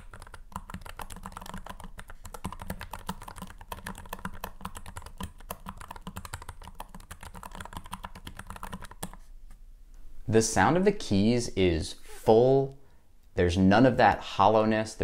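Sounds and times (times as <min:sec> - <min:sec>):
fast mechanical keyboard typing: 0:00.0 - 0:09.2.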